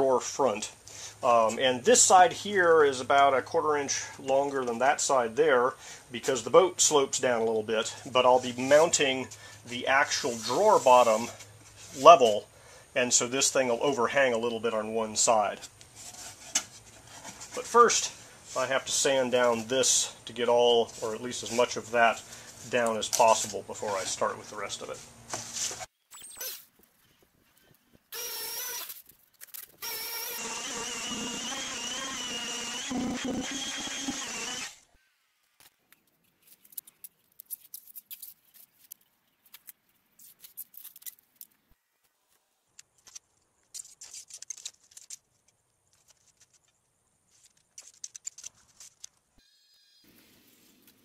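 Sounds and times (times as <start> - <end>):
power sander whining: 29.8 - 34.9.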